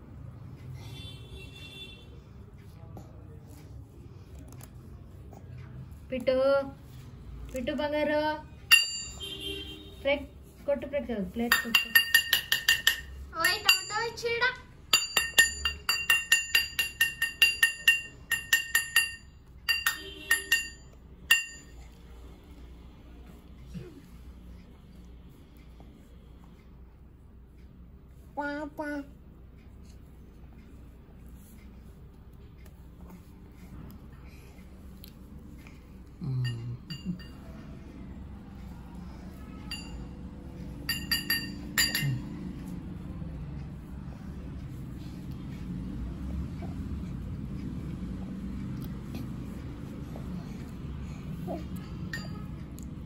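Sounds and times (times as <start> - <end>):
metal bracelet clinking: 40.9 - 42.2.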